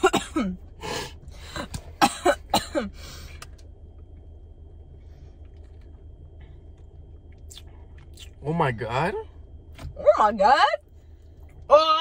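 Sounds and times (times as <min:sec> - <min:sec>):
person coughing: 0:00.0 - 0:00.6, 0:01.5 - 0:03.0
steady low hum: 0:00.0 - 0:12.0.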